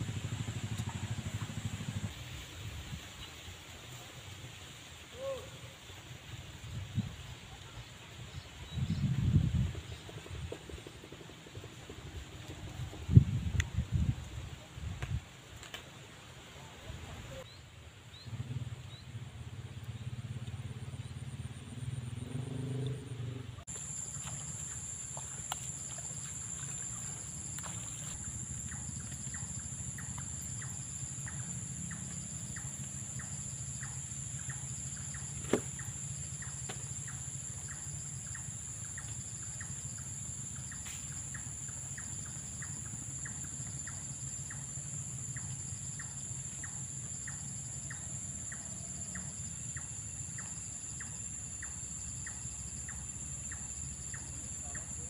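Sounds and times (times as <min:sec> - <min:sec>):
insects droning: 0:00.0 - 0:14.7, 0:15.6 - 0:55.0
insect ticking call: 0:19.8 - 0:55.0.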